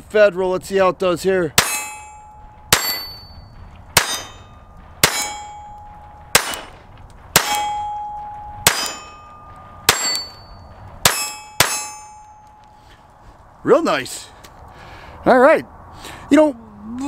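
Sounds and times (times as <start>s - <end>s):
short metallic ring: 1.6s - 6.6s, 7.4s - 13.0s
pistol shots: 3.9s - 10.4s.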